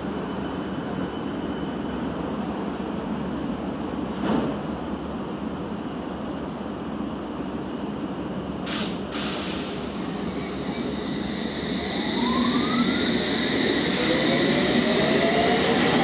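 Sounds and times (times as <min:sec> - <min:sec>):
train air hisses: 0:08.6 - 0:14.9
electric train motor whine: 0:10.0 - 0:16.0.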